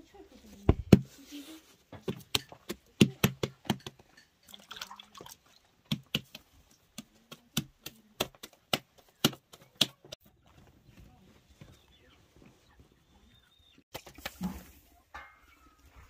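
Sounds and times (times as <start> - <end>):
dough slapped between palms: 5.9 - 10.2.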